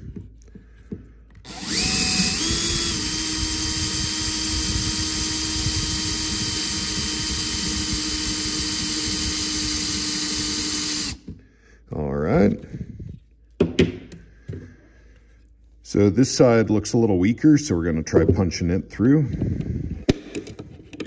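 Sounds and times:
cordless drill whining: 1.3s - 11.3s.

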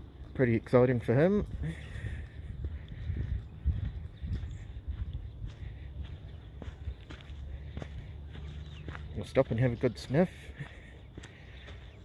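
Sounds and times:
footsteps on dirt track: 0.0s - 12.0s.

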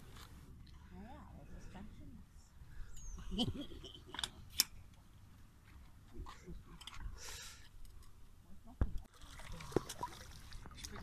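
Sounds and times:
water splash: 9.1s - 11.0s.

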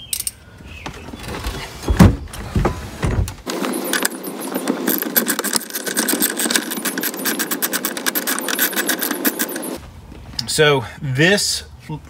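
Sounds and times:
hand ratchet clicking: 3.9s - 9.8s.

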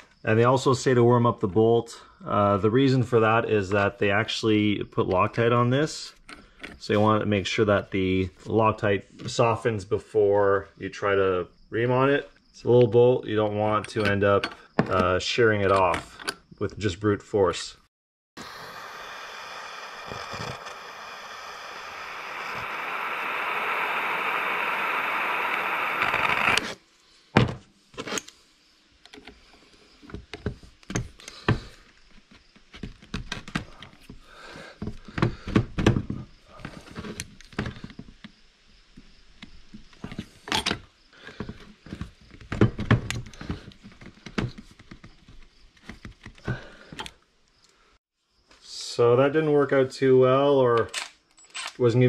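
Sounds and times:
heat gun blowing: 18.4s - 26.8s.

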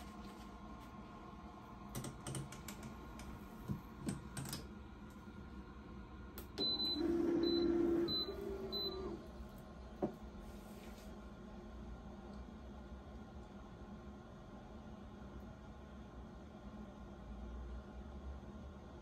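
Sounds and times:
heat press beeps: 6.6s - 9.2s.

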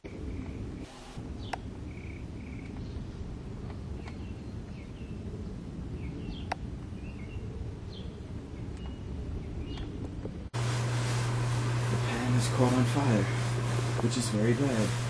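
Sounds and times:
small birds chirping: 0.0s - 10.2s.

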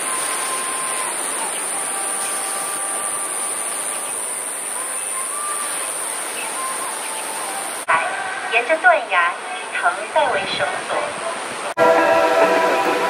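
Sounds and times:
high-pitched insect drone: 0.0s - 7.8s
thin whistled notes: 0.0s - 7.8s
constant rushing noise: 0.0s - 13.0s.

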